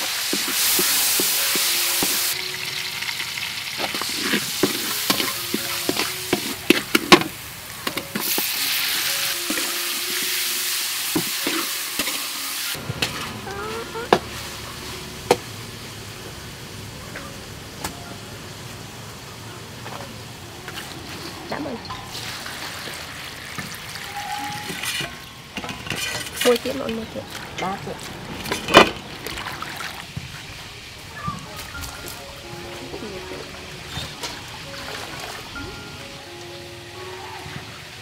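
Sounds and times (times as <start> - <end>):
food sizzling in hot oil: 0.0 - 16.8, 21.9 - 26.9
metal spatula scraping pan: 3.8 - 7.3, 24.1 - 26.6.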